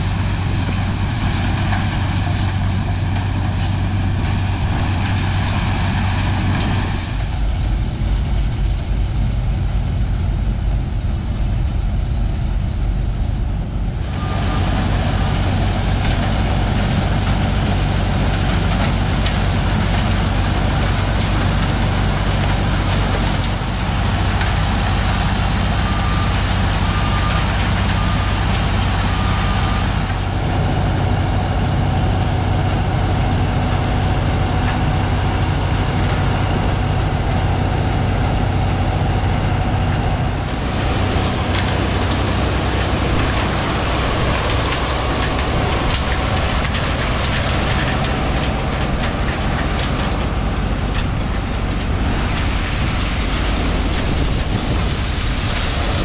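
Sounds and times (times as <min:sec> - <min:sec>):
tractor engine humming: 0:00.0 - 0:56.0
backup alarm beeping: 0:14.1 - 0:15.8, 0:25.8 - 0:30.0
corn sheller running: 0:40.2 - 0:56.0.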